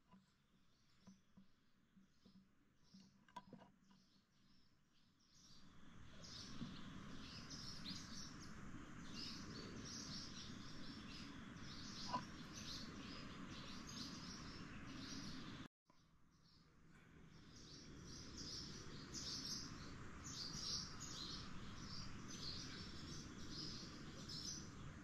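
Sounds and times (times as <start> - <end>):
birds chirping: 0.7 - 15.7, 17.2 - 25.0
steady background hiss: 5.4 - 15.7, 16.8 - 25.0.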